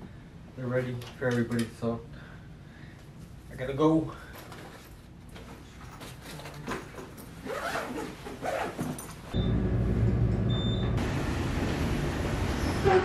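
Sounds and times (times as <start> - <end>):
bag rustling and clicking: 4.3 - 9.3.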